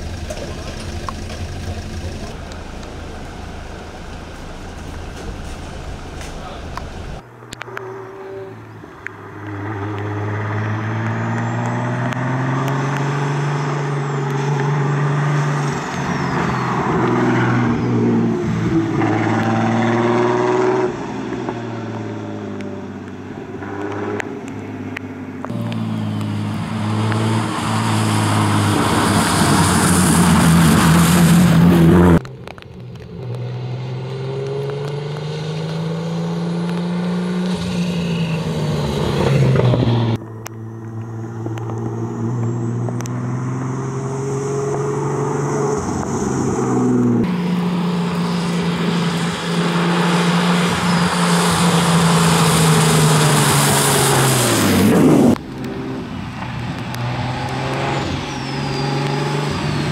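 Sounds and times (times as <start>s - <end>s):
race car engine revving: 0.0s - 22.7s, 33.2s - 59.9s
tyres hissing on wet road: 45.2s - 55.4s.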